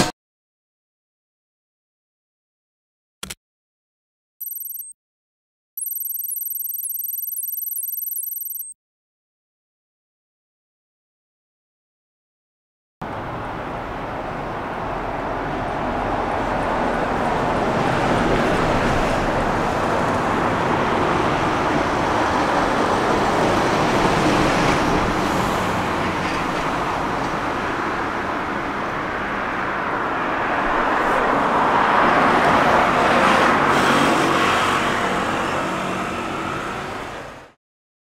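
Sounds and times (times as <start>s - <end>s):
vehicles passing: 13.0s - 37.5s.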